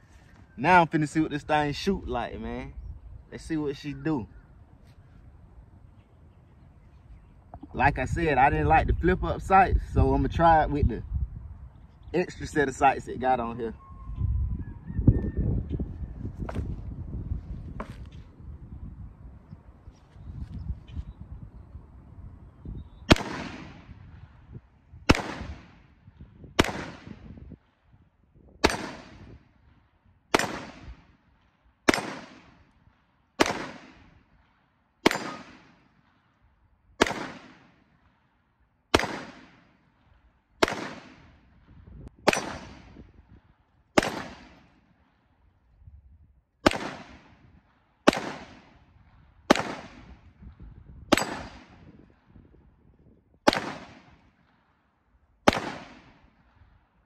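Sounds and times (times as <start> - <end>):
pistol shots with echo: 23.1 - 24.0, 25.1 - 25.9, 26.6 - 27.3, 28.6 - 29.4, 30.3 - 31.1, 31.9 - 32.7, 33.4 - 34.1, 35.0 - 35.9, 37.0 - 37.8, 38.9 - 39.8, 40.6 - 41.4, 42.2 - 43.0, 44.0 - 44.8, 46.6 - 47.4, 48.0 - 48.8, 49.5 - 50.2, 51.1 - 51.9, 53.5 - 54.3, 55.4 - 56.4.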